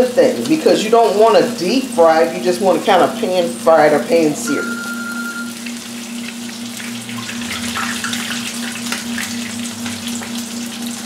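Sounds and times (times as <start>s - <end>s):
fish sizzling in hot oil: 4.7s - 11.0s.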